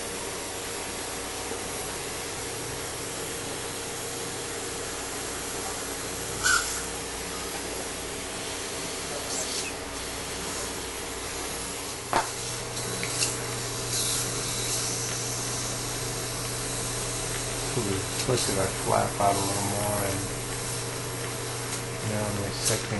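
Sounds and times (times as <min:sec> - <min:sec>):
dental equipment hiss and hum: 0:00.0 - 0:22.9
short sharp hisses: 0:06.4 - 0:07.0.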